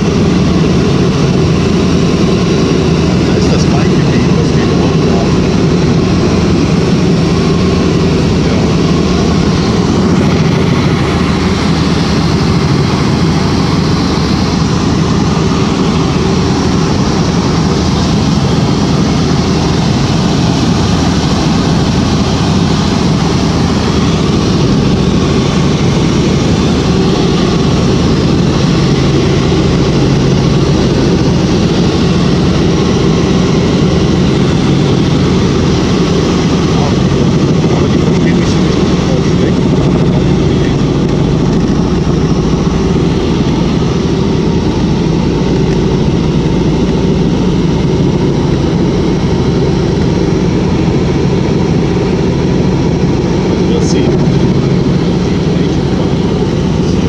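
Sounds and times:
helicopter engine and rotor drone: 0:00.0 - 0:57.0.

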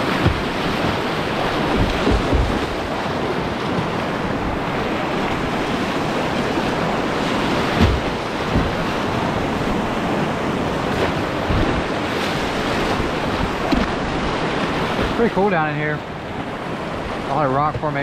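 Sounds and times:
whitewater rapids rushing: 0:00.0 - 0:18.0
short low thumps: 0:00.2 - 0:02.9, 0:07.6 - 0:10.0.

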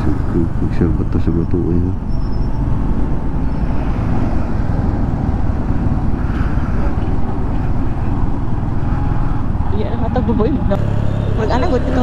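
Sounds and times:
road noise: 0:00.0 - 0:12.0
motorcycle engine: 0:04.4 - 0:12.0.

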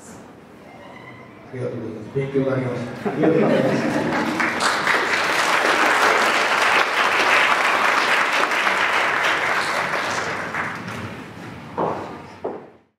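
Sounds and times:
audience applauding: 0:03.5 - 0:11.4.

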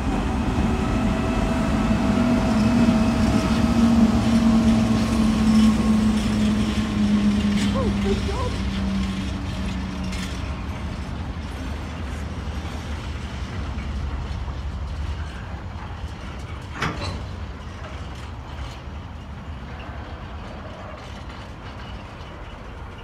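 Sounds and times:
train wheels clattering on rail: 0:00.0 - 0:23.0.

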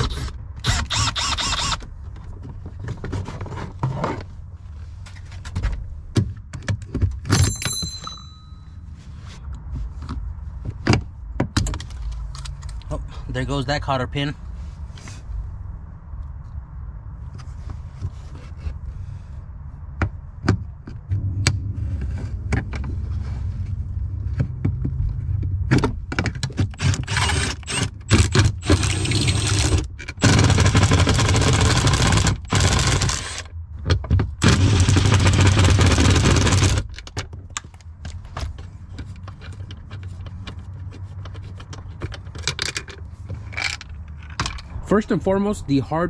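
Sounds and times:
cordless power tool running: 0:26.8 - 0:33.4, 0:34.4 - 0:36.8.

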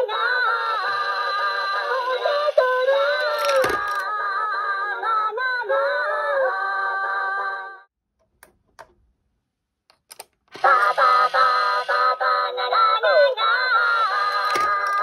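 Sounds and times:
toy speaker synthetic singing voice: 0:00.0 - 0:06.3, 0:10.6 - 0:15.0.

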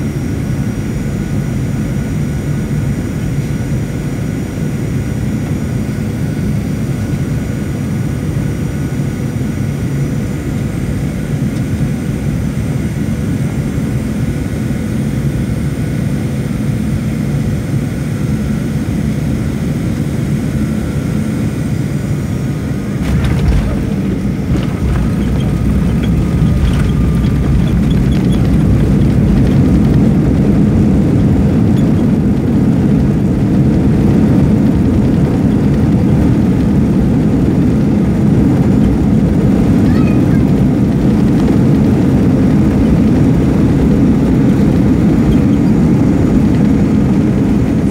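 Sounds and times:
jet engine drone: 0:00.0 - 0:47.9
wheels touching down jolt: 0:23.0 - 0:30.2.

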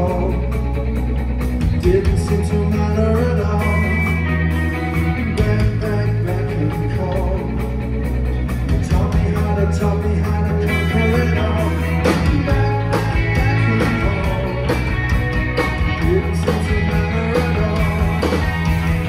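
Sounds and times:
live rock band playing: 0:00.0 - 0:19.0.

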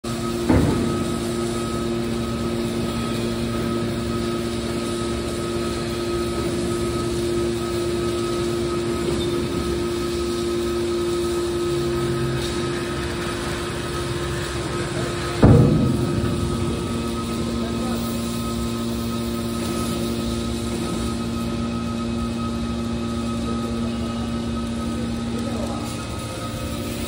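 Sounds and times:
hydraulic motor and pump hum: 0:00.0 - 0:27.0
sharp metal clank: 0:15.4 - 0:18.5.

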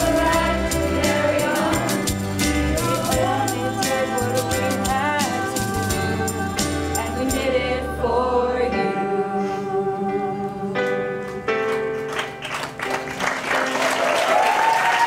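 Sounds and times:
group singing with instruments: 0:00.0 - 0:11.1.

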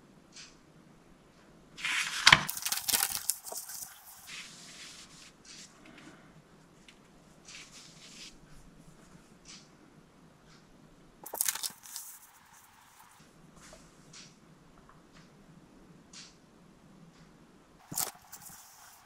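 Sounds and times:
paper pages rustling: 0:01.8 - 0:06.2, 0:06.8 - 0:09.3, 0:11.2 - 0:13.8, 0:17.8 - 0:19.0.

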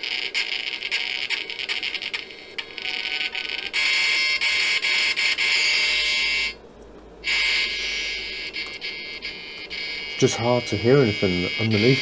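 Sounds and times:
radio static hiss: 0:00.0 - 0:06.6, 0:07.2 - 0:12.0.

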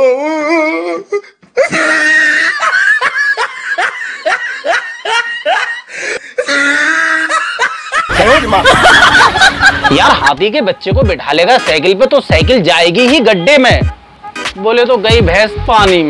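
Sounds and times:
loud hearty laughter: 0:01.6 - 0:10.4.

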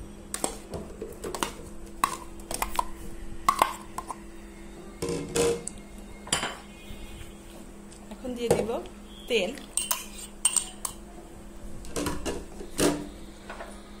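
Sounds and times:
metal spoon clinking on glass: 0:09.8 - 0:11.0.

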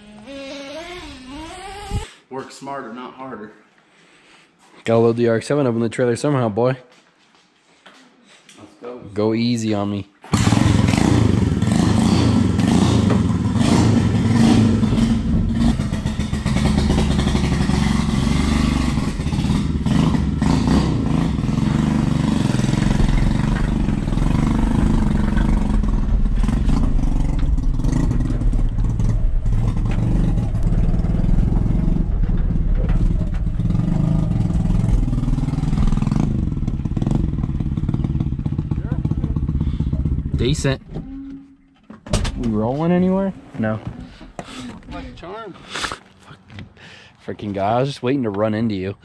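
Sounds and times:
small motorbike engine revving: 0:10.3 - 0:32.1.

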